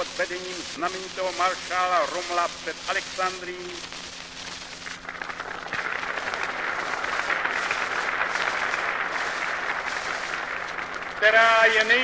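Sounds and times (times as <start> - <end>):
large crowd applauding: 4.8 - 12.0.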